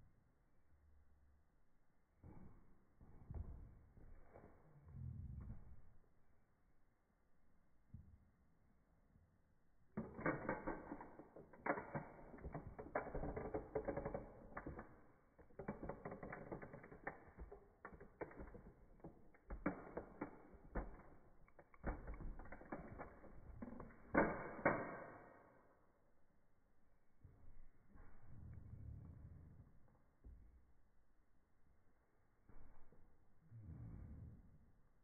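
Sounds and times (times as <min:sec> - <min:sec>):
toy car creaking and cracking: 0:10.0 - 0:25.0.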